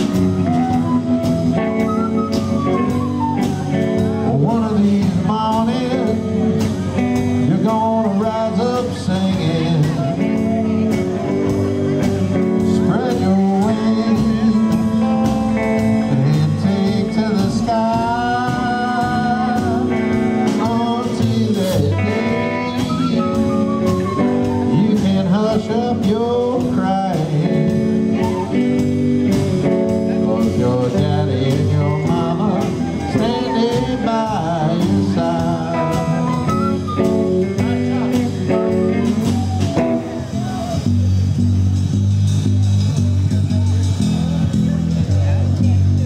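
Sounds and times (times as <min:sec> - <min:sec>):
rockabilly band song: 0:00.0 - 0:46.0.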